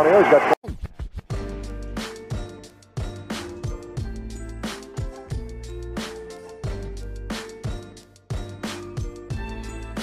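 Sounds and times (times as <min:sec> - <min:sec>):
steady drum beat: 0:00.6 - 0:10.0.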